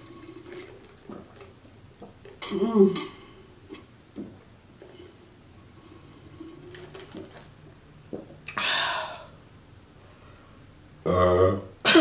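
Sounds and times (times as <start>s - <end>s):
person exhaling: 8.5s - 9.4s.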